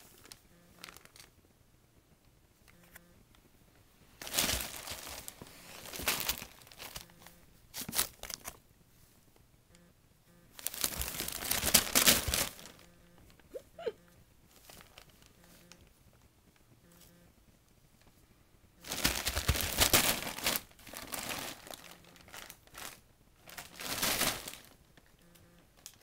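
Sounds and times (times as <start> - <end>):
wrapping paper crinkling and rustling: 0.0 - 1.3, 4.2 - 8.6, 10.6 - 12.9, 14.5 - 15.4, 18.8 - 25.1.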